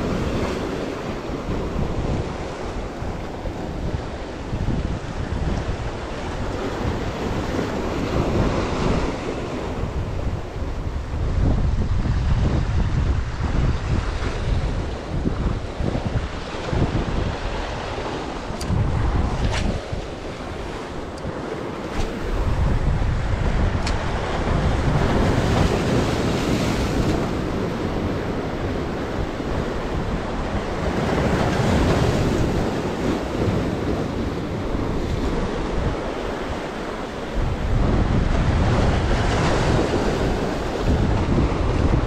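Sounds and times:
wind buffeting microphone: 0.0 - 42.0
sea waves breaking on concrete blocks: 16.0 - 42.0.

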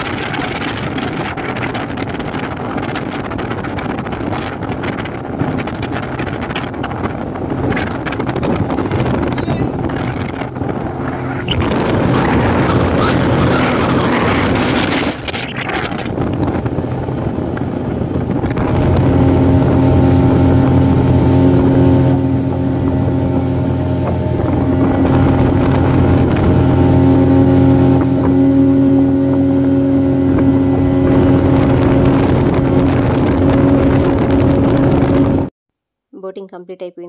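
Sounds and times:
motorboat engine drone: 0.0 - 35.5
wind and water on microphone: 0.0 - 35.5.

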